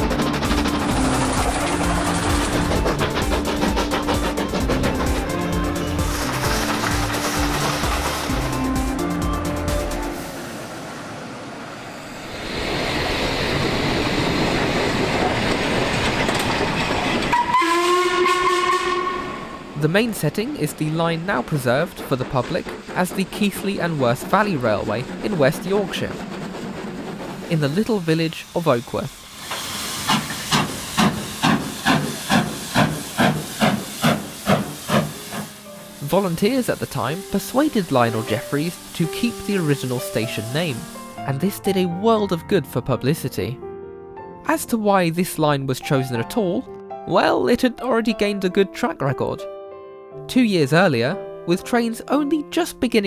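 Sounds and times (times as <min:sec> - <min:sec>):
steam locomotive hissing: 0:00.0 - 0:41.8
steam whistle blast: 0:17.3 - 0:19.6.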